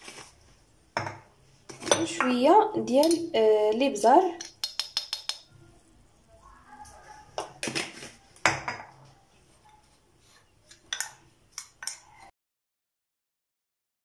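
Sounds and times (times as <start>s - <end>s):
teaspoon clinking on ceramic bowl: 4.4s - 5.5s.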